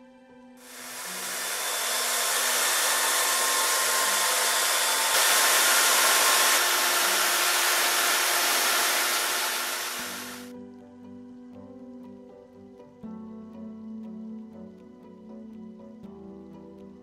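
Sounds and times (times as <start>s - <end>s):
wet dry vacuum sucking water: 0.6s - 10.5s.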